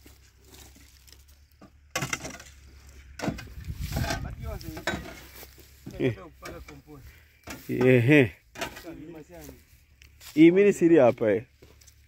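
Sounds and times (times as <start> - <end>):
shovel scraping compost: 0.0 - 9.6.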